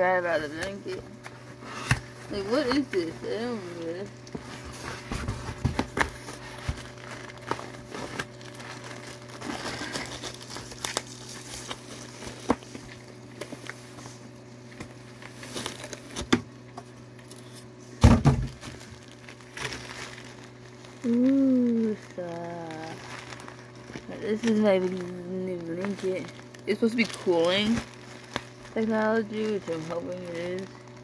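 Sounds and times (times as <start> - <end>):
packaging crinkling: 0.4 - 31.0
person humming: 21.0 - 23.0.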